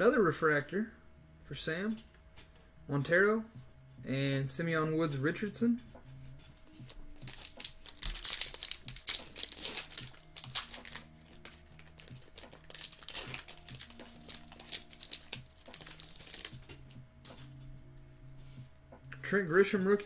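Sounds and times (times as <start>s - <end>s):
foil wrapper crinkling and tearing: 6.8s - 17.0s.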